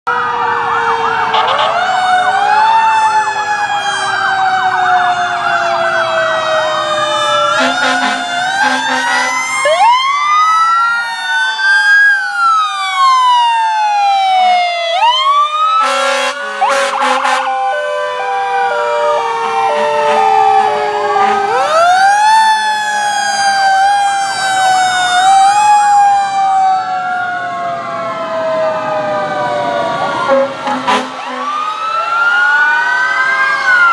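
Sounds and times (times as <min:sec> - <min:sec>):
electronic sirens wailing and yelping: 0:00.1 - 0:33.9
short horn blasts: 0:07.6 - 0:09.4, 0:15.8 - 0:17.6, 0:30.3 - 0:31.5.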